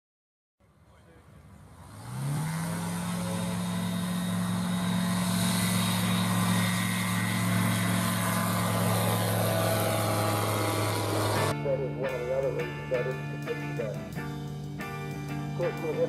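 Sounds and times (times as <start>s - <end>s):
light aircraft engine drone: 0.6s - 16.0s.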